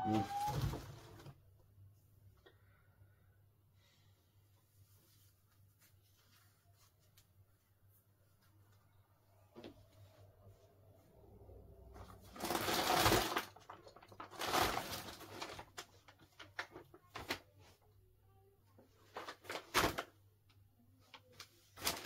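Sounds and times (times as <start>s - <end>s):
rummaging rustles: 0.0s - 1.3s, 12.0s - 17.4s, 19.0s - 20.1s, 21.4s - 22.0s.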